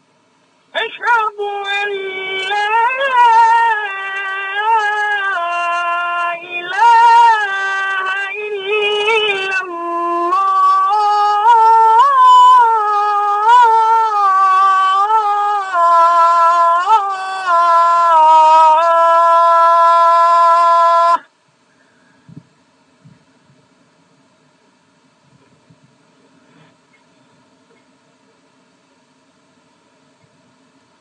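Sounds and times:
man chanting call to prayer: 0.8s - 21.3s.

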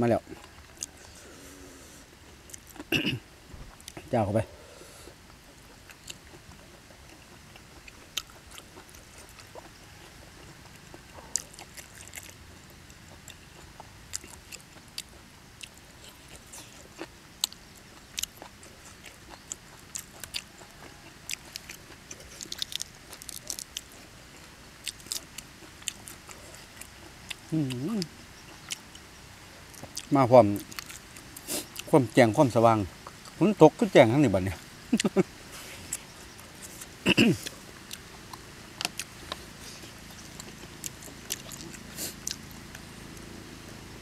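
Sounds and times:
wet chewing mouth sounds: 5.1s - 31.9s, 35.0s - 43.3s.

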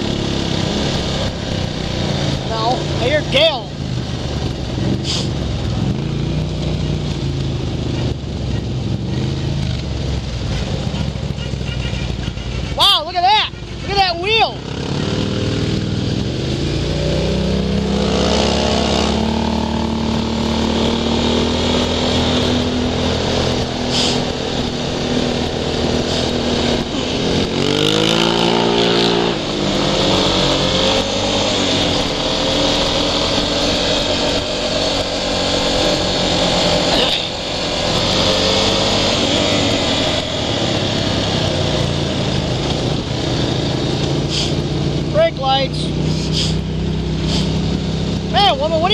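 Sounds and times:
atv engine revving: 0.0s - 48.9s
wind rushing over microphone: 14.6s - 45.2s.

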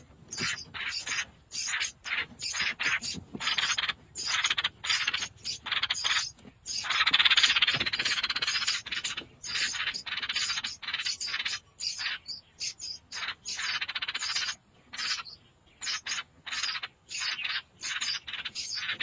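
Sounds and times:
nestling birds begging calls: 0.0s - 19.0s.

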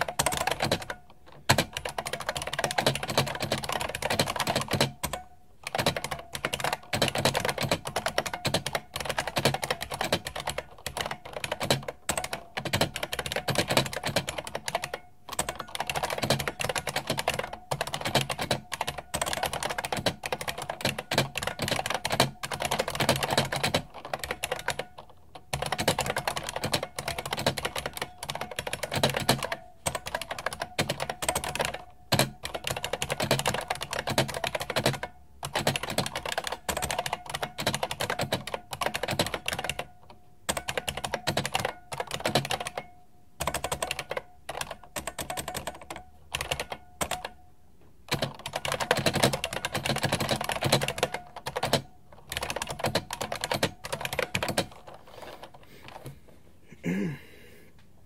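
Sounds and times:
clicky keyboard typing: 0.0s - 47.4s, 48.1s - 56.2s.

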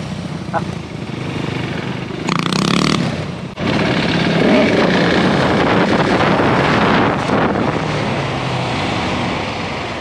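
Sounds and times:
motorcycle engine under throttle: 0.0s - 8.4s
wind rushing over microphone: 2.9s - 10.0s.

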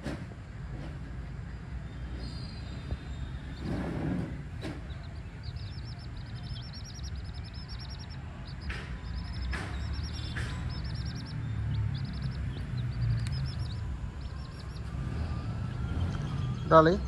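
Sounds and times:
steady low rumble: 0.9s - 17.0s
chicks peeping: 2.1s - 17.0s
sharp knocks: 6.4s - 13.8s.

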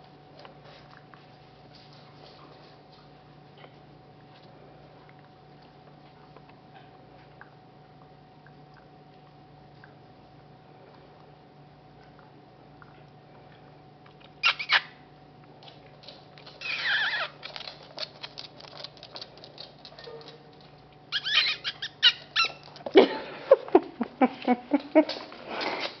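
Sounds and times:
puppy chewing rawhide: 14.0s - 23.0s
squeaky scraping: 14.4s - 14.9s, 16.5s - 17.8s, 21.1s - 22.8s.

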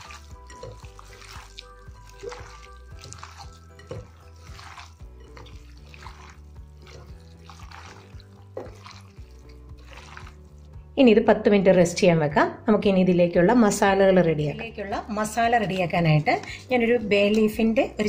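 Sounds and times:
hand kneading wet meat: 0.0s - 10.8s
background music: 0.0s - 18.0s.

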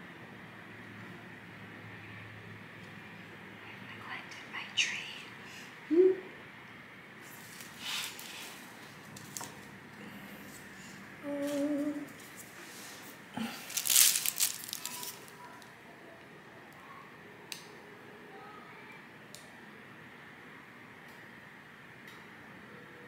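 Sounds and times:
person humming: 5.9s - 6.3s, 11.2s - 12.2s
hissy rustle: 7.2s - 9.6s, 10.4s - 15.7s.

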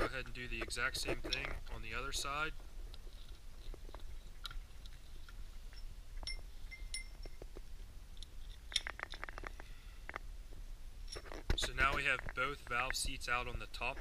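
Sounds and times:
short metallic rings: 5.7s - 7.4s.

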